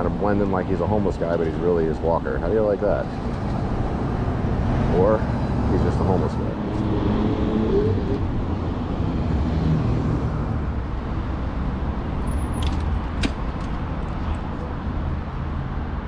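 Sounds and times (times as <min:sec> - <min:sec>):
city street traffic rumble: 0:00.0 - 0:16.0.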